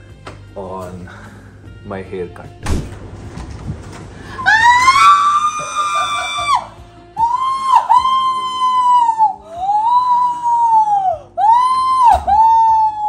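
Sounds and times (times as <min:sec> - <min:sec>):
woman screaming: 0:04.3 - 0:13.0.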